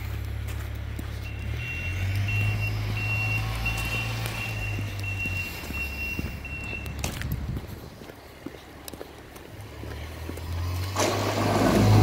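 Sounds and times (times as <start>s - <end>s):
reversing alarm beeping: 1.2s - 7.1s.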